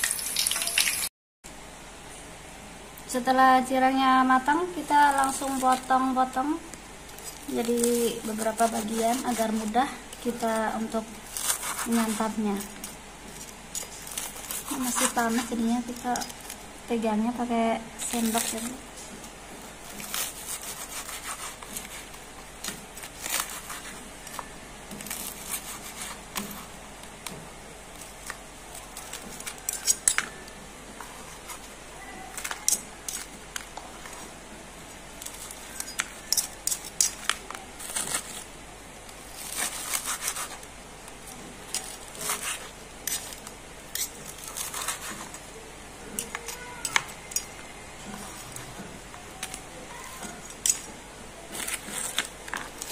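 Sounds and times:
knife and fork scraping: 0:07.1 - 0:10.6, 0:11.2 - 0:16.6, 0:19.8 - 0:22.2, 0:23.0 - 0:26.7, 0:28.0 - 0:31.7, 0:32.3 - 0:33.4, 0:35.2 - 0:38.5, 0:39.3 - 0:40.6, 0:41.7 - 0:45.4, 0:51.5 - 0:52.9.

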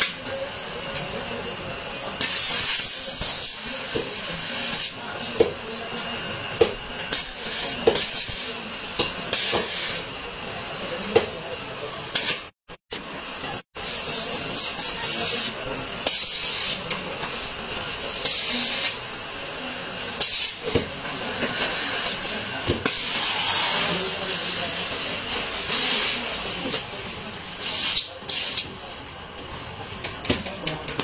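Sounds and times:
compressed air hissing in bursts: 0:02.2 - 0:05.8, 0:07.1 - 0:10.2, 0:13.1 - 0:29.0.

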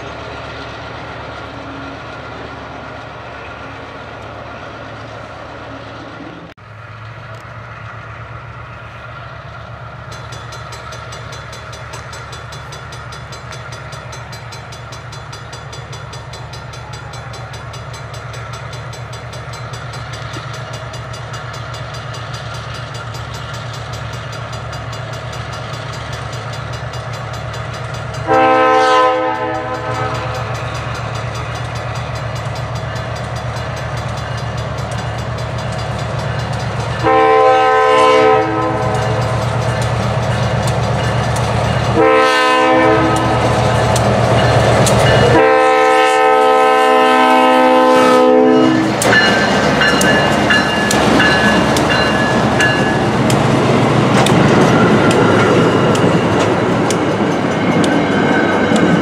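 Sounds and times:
diesel locomotive engine running: 0:00.0 - 0:59.0
train air horn blasts: 0:28.2 - 0:30.6, 0:37.0 - 0:39.2, 0:41.9 - 0:43.8, 0:45.2 - 0:49.0.

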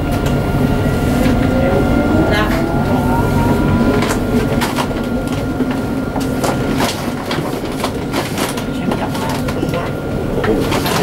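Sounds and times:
high whine: 0:00.0 - 0:07.3
tram rumbling on rails: 0:00.0 - 0:11.0.

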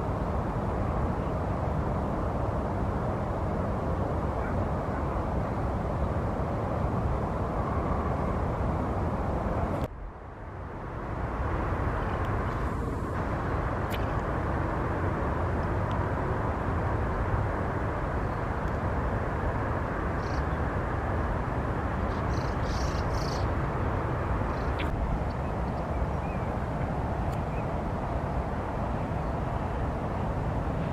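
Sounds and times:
low outdoor background rumble: 0:00.0 - 0:30.9.

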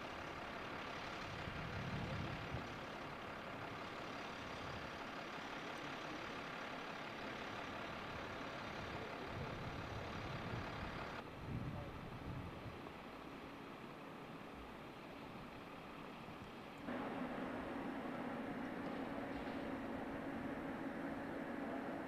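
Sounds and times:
engine idling low rumble: 0:00.0 - 0:22.0.

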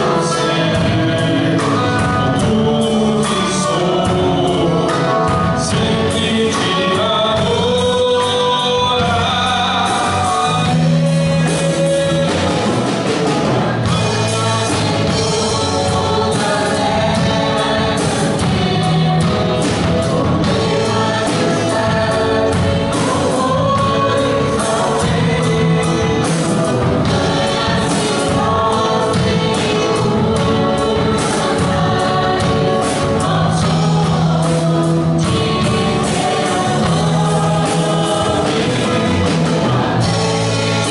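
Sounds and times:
man singing: 0:00.0 - 0:13.0, 0:13.7 - 0:40.9
acoustic guitar: 0:00.0 - 0:40.9
electric guitar: 0:00.0 - 0:40.9
keyboard: 0:00.0 - 0:40.9
percussion: 0:00.0 - 0:40.9.

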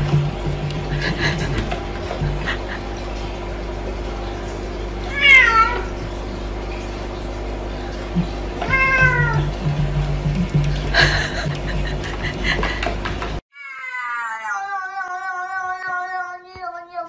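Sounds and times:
kitten meowing: 0:13.6 - 0:17.0.

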